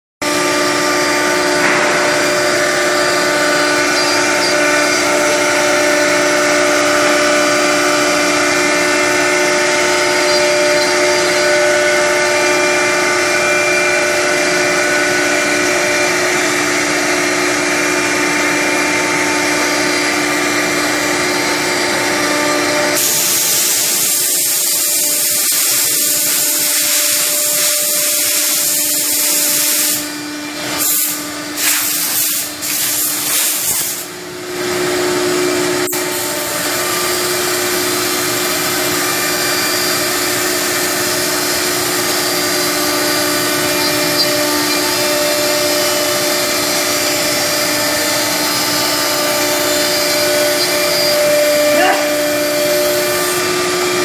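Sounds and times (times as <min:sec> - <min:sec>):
dust extraction rushing: 0:00.2 - 0:15.2, 0:34.6 - 0:54.0
cnc router spindle whine: 0:00.2 - 0:54.0.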